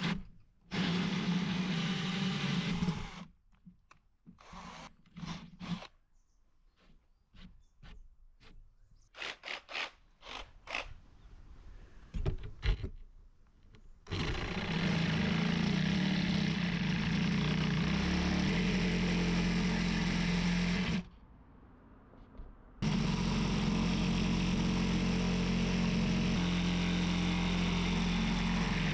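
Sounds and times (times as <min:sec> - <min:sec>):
power tool humming: 0:14.1 - 0:21.0, 0:22.8 - 0:28.9.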